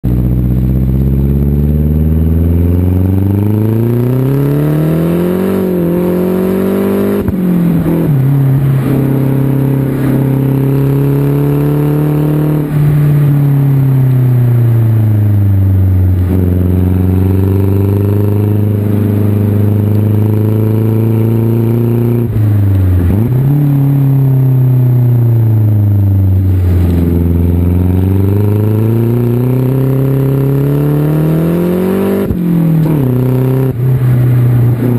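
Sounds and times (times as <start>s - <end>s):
car engine accelerating: 0.0s - 34.9s.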